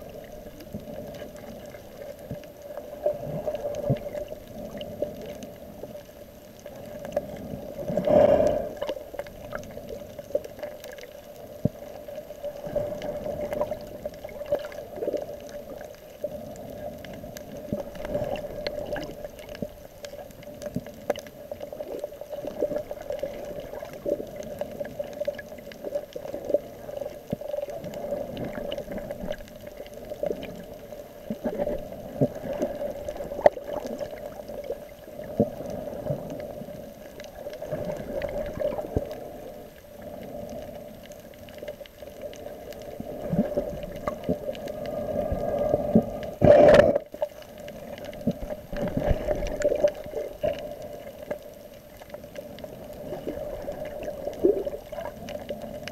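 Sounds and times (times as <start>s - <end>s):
dull water wash: 0.0s - 55.9s
small clicks and crackles: 0.0s - 55.9s
underwater hum: 0.0s - 55.9s
water swoosh: 6.8s - 11.1s.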